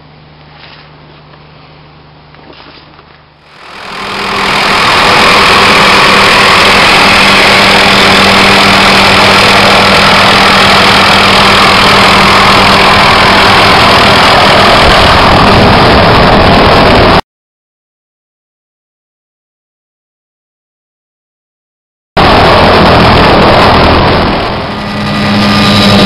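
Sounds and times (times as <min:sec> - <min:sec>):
helicopter hovering overhead: 0:03.4 - 0:17.2, 0:22.2 - 0:26.0.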